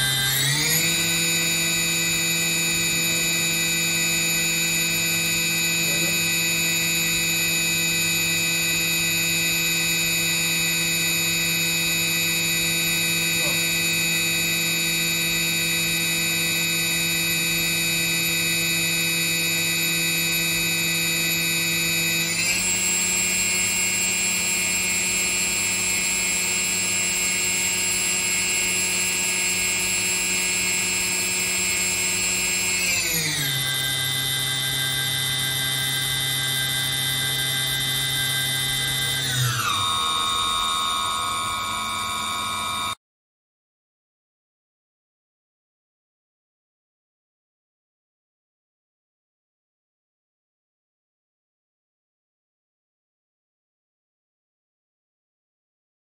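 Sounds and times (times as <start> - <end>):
machine spindle whining: 0.0 - 43.0.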